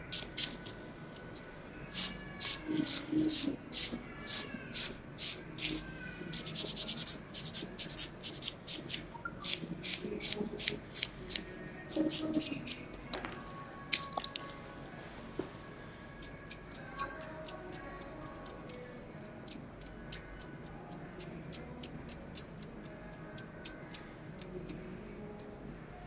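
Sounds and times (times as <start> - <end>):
cuticle pusher scraping fingernails: 0.1 - 13.0.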